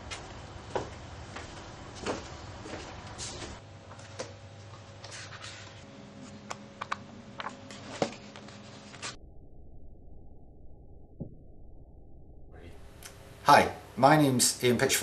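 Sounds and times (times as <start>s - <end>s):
faint room hum: 0.0s - 9.2s, 12.5s - 15.0s.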